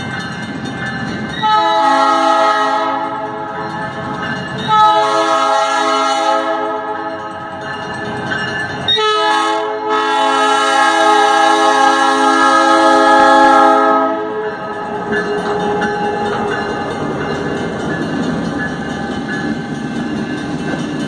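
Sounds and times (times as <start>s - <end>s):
locomotive engines and wheels rumbling: 0.0s - 21.0s
locomotive air horn chord: 1.4s - 3.3s, 4.7s - 7.0s, 9.0s - 14.4s.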